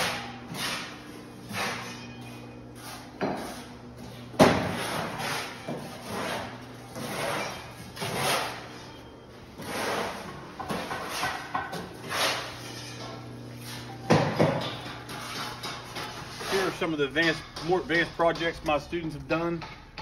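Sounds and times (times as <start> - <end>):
electrical hum: 0.0 - 20.0
footsteps on gritty concrete: 16.3 - 19.6.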